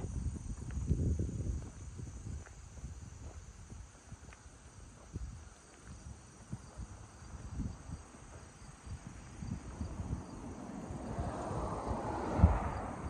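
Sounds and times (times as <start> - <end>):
crickets trilling: 0.0 - 13.0
low thumps and rumble: 6.5 - 13.0.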